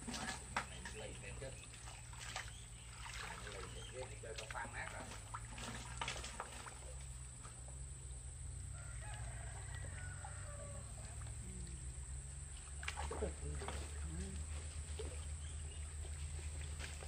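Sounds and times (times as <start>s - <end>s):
steady low hum: 0.0s - 17.0s
rooster crowing faintly: 8.7s - 11.8s.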